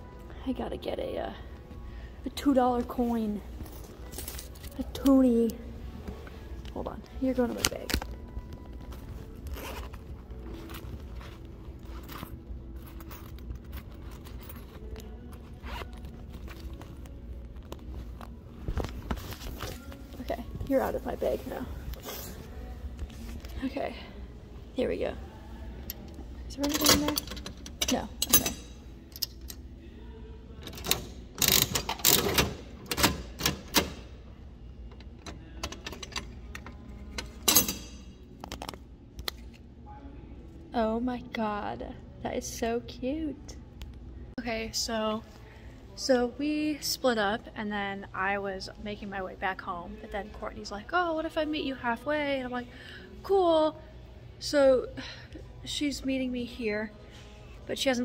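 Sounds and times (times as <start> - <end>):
muffled rustling in fabric bag: 14.3 - 23.7
vending machine crank ratcheting: 26.5 - 29.6, 30.6 - 34.1.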